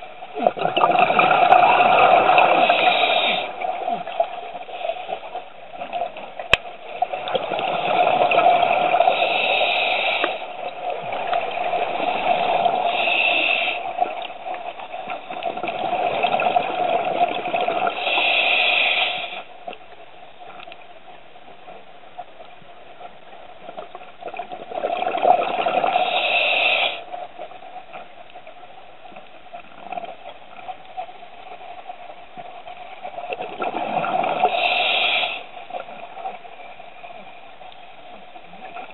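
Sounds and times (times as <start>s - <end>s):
exhaled bubbles rushing: 0.3s - 2.9s, 15.3s - 17.9s, 24.4s - 26.0s, 33.3s - 34.7s
water hissing: 1.2s - 3.7s, 7.8s - 10.6s, 11.7s - 14.2s, 17.8s - 19.5s, 25.8s - 27.0s, 34.0s - 35.6s.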